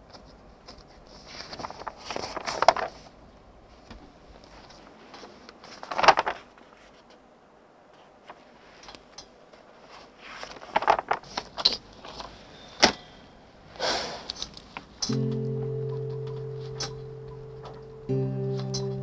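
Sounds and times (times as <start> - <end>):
paper rustling: 0.0 - 3.2, 3.8 - 7.2, 8.0 - 12.5.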